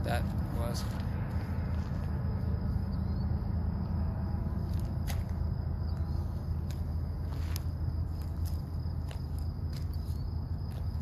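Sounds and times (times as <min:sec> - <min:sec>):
faint insect drone: 0:00.0 - 0:11.0.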